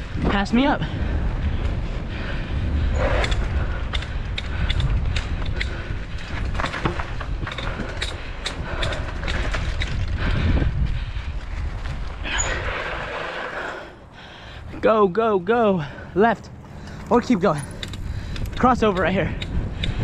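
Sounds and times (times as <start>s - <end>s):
mountain bike rattling and creaking: 0.0s - 20.0s
wind buffeting microphone: 0.0s - 20.0s.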